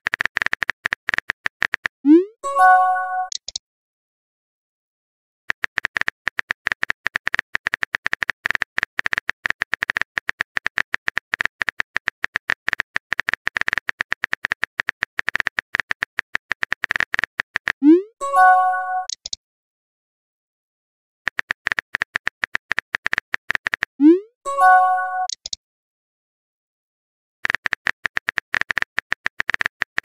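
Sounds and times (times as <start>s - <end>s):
phone keyboard typing clicks: 0.1s - 1.9s, 3.2s - 3.6s, 5.5s - 17.8s, 18.4s - 19.4s, 21.3s - 23.9s, 24.6s - 25.6s, 27.4s - 30.0s.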